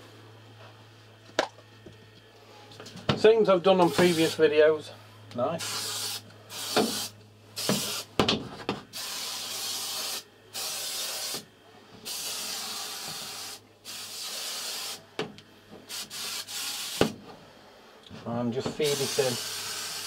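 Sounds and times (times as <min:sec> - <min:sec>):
aerosol spray hissing: 0:05.6 - 0:08.1, 0:09.0 - 0:11.4, 0:12.1 - 0:15.0, 0:15.9 - 0:17.0, 0:18.8 - 0:20.0.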